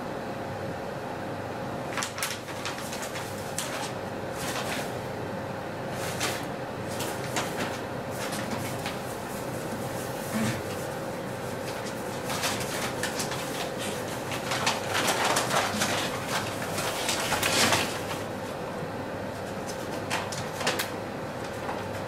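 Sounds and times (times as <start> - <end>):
steady hum: 0.0 - 22.0
paper bag crinkling: 1.9 - 5.0, 6.0 - 9.8, 11.5 - 18.4.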